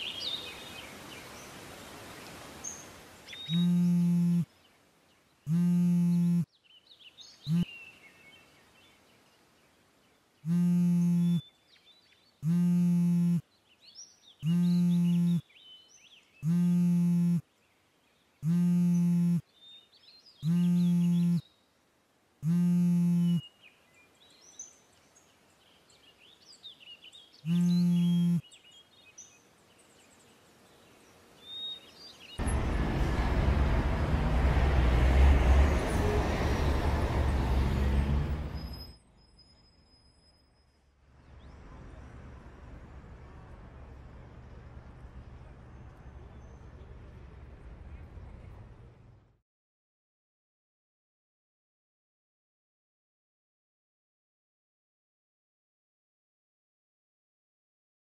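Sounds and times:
faint bird chirps: 0:02.2 - 0:21.8, 0:22.4 - 0:32.5, 0:37.8 - 0:42.4
phone vibrating against bed: 0:03.5 - 0:04.4, 0:05.5 - 0:06.4, 0:10.5 - 0:11.4, 0:12.4 - 0:13.4, 0:14.4 - 0:15.4, 0:16.4 - 0:17.4, 0:18.4 - 0:19.4, 0:20.4 - 0:21.4, 0:22.4 - 0:23.4, 0:27.5 - 0:28.4
loud vehicle traffic: 0:32.4 - 0:38.9.

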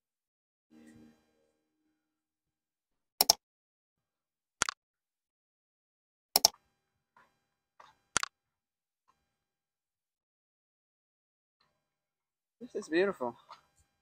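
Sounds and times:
mouse double clicks: 0:06.4 - 0:06.6.

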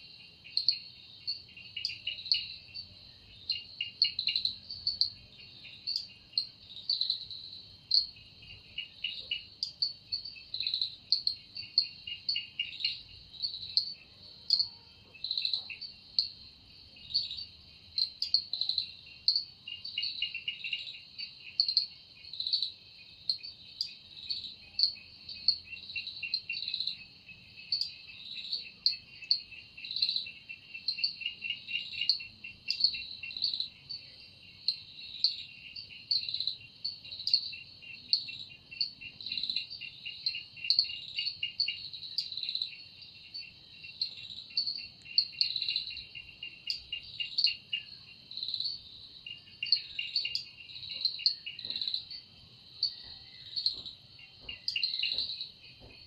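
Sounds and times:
insect high chirp: 0:00.0 - 0:56.0
insect rattling trill: 0:34.8 - 0:55.8.

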